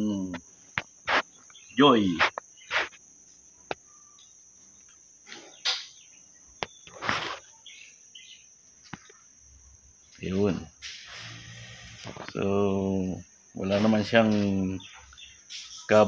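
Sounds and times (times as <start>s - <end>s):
cricket trill: 0.0s - 16.0s
wet sponge rubbing: 1.1s - 1.3s, 2.2s - 3.0s, 6.9s - 7.4s.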